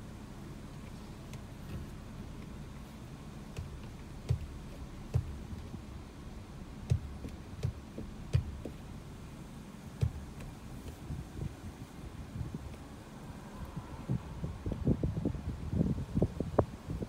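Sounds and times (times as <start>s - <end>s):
sharp thumps: 3.5s - 5.9s, 6.7s - 9.0s, 9.9s - 11.6s
wind buffeting microphone: 9.9s - 17.0s.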